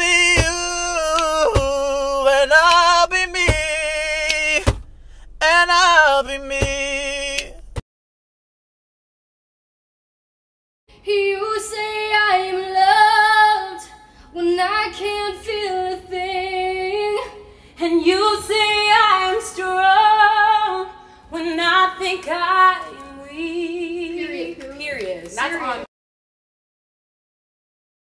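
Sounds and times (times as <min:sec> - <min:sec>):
woman singing unaccompanied: 0:11.0 - 0:25.7.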